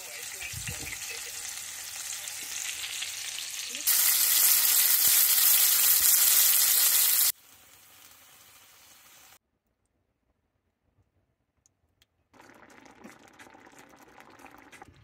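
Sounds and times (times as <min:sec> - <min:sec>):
chicken frying in oil: 0:00.0 - 0:09.4.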